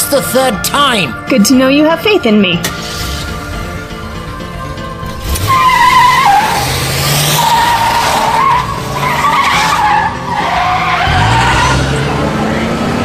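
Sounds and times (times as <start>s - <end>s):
car engine revving: 2.6s - 13.0s
tyres squealing: 5.0s - 12.0s.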